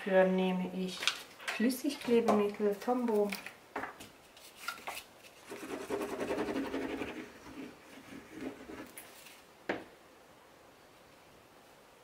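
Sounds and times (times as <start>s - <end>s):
sponge tip rubbing on paper: 5.4s - 9.0s.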